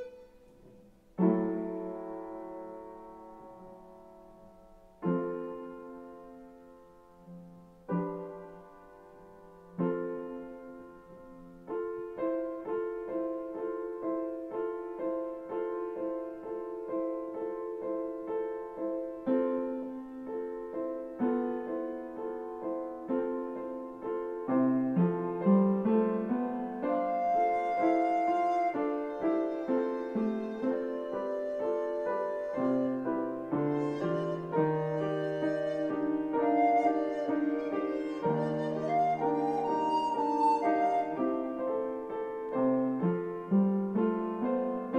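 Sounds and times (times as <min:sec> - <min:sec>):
recorder playing held notes: 0:00.0 - 0:00.8
piano playing: 0:00.0 - 0:44.9.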